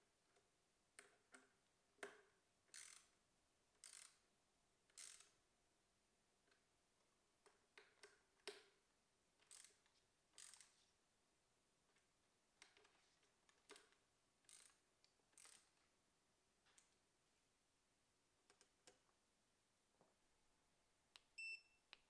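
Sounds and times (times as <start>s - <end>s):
ratchet driver clicking: 2.7s - 3.1s, 3.8s - 4.2s, 5.0s - 5.3s, 9.4s - 9.8s, 10.4s - 10.7s, 14.5s - 14.8s, 15.4s - 15.7s.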